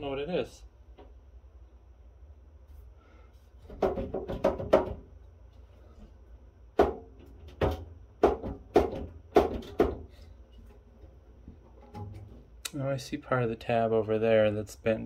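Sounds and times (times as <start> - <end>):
sheet metal cover knocking: 3.6 - 5.1, 6.8 - 10.1.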